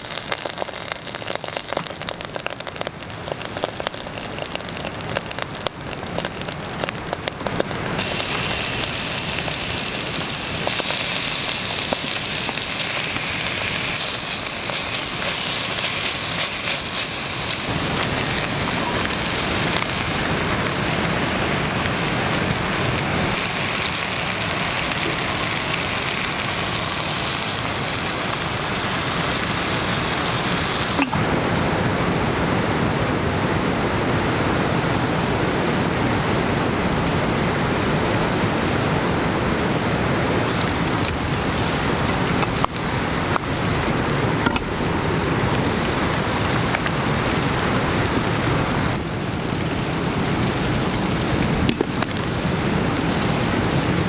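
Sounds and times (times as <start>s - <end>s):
oil sizzling in a pot: 0.0s - 31.2s.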